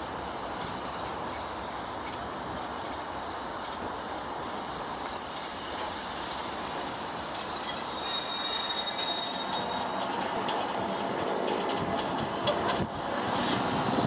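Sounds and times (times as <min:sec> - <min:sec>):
steam train rolling rumble: 0:00.0 - 0:14.0
wheel flanges squealing: 0:05.6 - 0:12.8.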